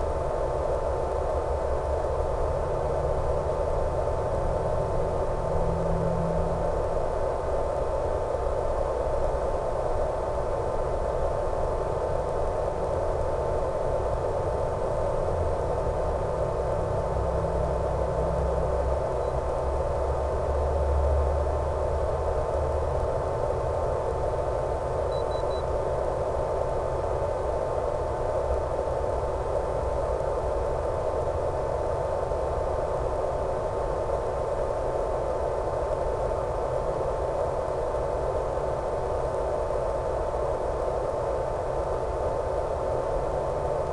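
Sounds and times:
low hum: 0.0s - 8.4s
thin high whine: 24.4s - 43.9s.

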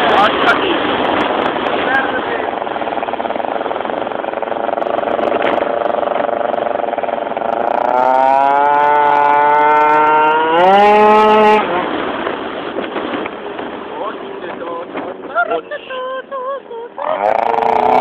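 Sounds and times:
scooter engine revving: 0.0s - 12.4s, 16.9s - 18.0s.

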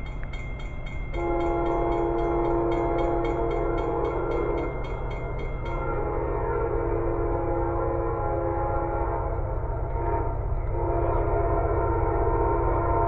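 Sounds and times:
crossing bell dinging: 0.0s - 8.1s
locomotive air horn: 1.2s - 4.8s, 5.7s - 13.0s.

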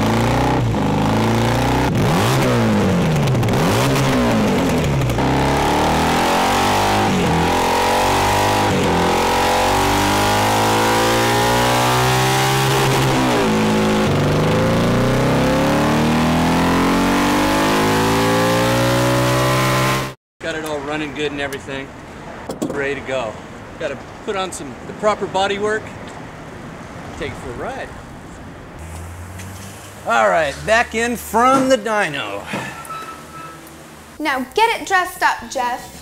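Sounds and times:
motorcycle engine revving: 0.0s - 20.2s.

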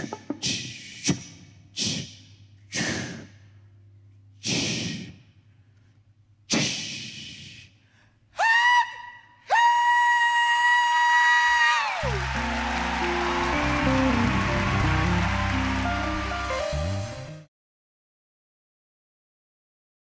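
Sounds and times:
voice imitating train whistle: 8.4s - 14.0s.

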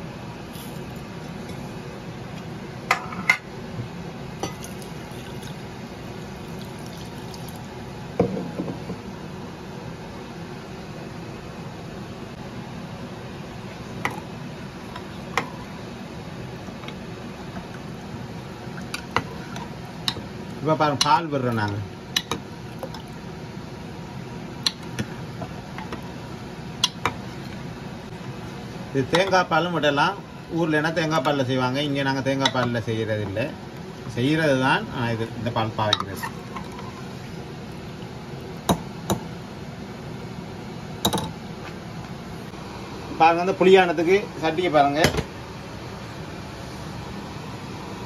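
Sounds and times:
steady low hum: 0.0s - 48.0s
water pouring into bowl: 4.5s - 5.6s, 6.3s - 7.7s.

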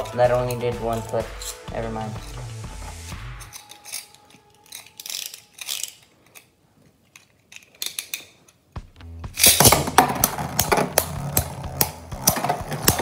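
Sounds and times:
spinning tops clacking together: 3.4s - 6.4s, 9.3s - 13.0s.

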